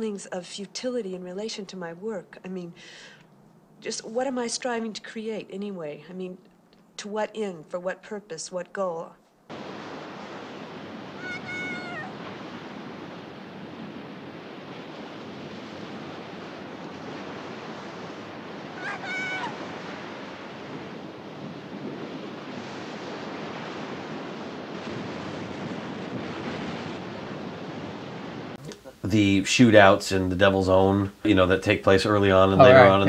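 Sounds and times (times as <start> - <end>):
ocean surf breaking: 9.5 - 29.0, 32.6 - 33.0
short high cry: 11.2 - 12.2, 18.8 - 19.6.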